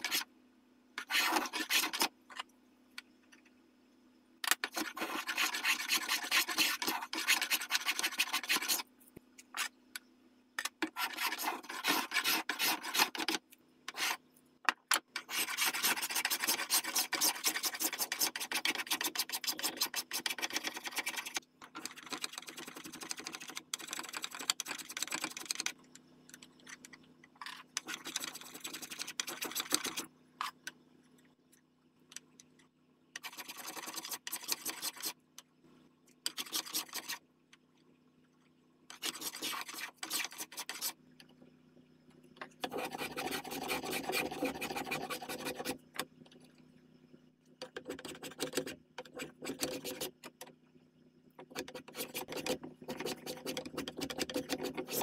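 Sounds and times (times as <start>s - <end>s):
hand tools scraping wood: 10.8s - 14.2s, 51.5s - 55.0s.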